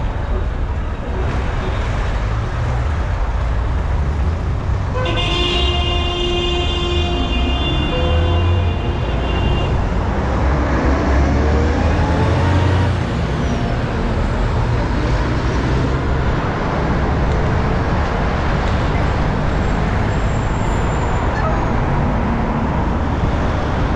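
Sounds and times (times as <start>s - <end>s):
traffic rumble: 0.0s - 23.9s
car horn: 4.9s - 10.2s
vehicle accelerating: 9.2s - 23.9s.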